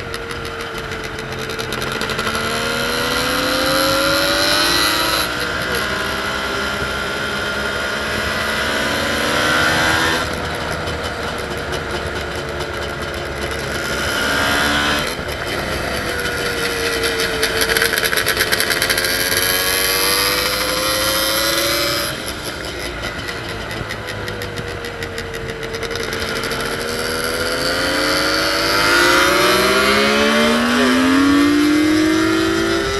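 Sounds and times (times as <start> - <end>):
two-stroke motorcycle engine revving: 0.0 - 32.9.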